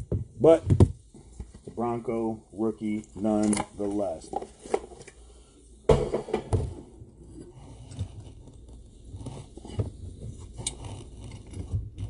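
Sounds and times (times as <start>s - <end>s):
plastic cases knocking on table: 5.9s - 6.8s.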